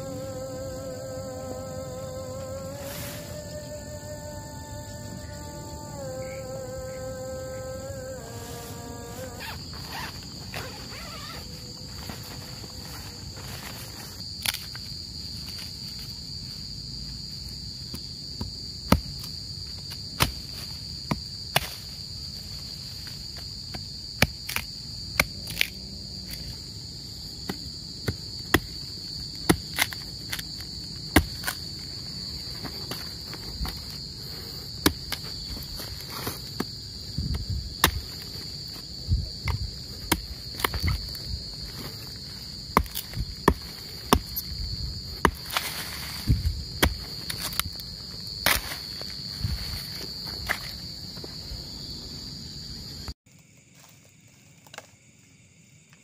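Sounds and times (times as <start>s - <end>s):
crickets chirring: 0.0s - 56.0s
blade chopping tree trunk: 20.2s - 21.8s, 27.4s - 31.6s, 34.8s - 36.7s, 37.8s - 38.4s, 39.4s - 41.9s, 42.6s - 47.8s, 48.4s - 48.8s.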